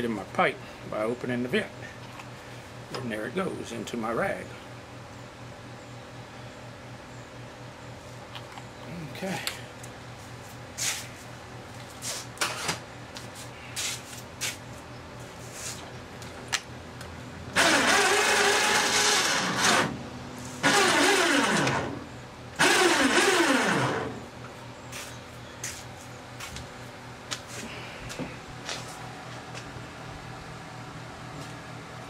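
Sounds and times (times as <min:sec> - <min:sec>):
motor-driven shop tool running: 0:17.5 - 0:24.2.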